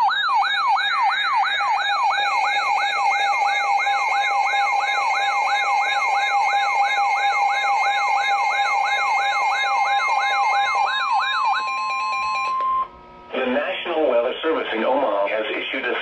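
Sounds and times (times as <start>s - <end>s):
rising electronic siren whoop: 0.0s - 12.9s
steady alarm tone: 0.0s - 14.1s.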